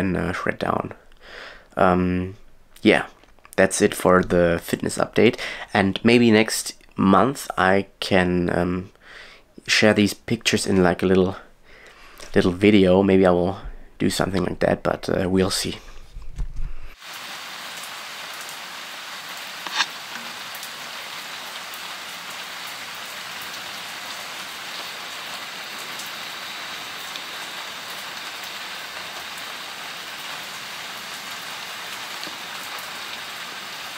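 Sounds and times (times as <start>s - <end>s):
rain falling on paving: 17.0s - 33.9s.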